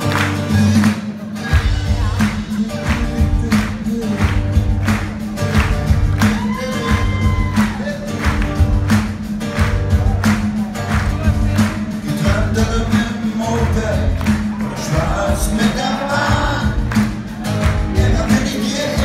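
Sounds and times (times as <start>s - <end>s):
live rock band playing: 0.0s - 19.0s
man singing: 0.4s - 5.6s, 6.2s - 8.3s, 11.2s - 19.0s.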